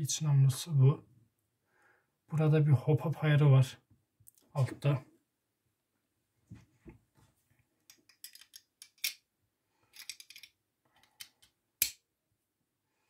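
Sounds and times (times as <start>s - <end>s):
clicks and light rattles: 9.9s - 11.6s.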